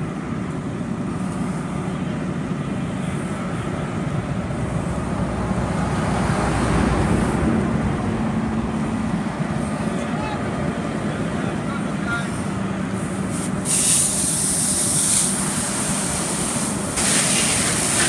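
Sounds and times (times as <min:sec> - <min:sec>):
fire engines running: 0:00.0 - 0:18.0.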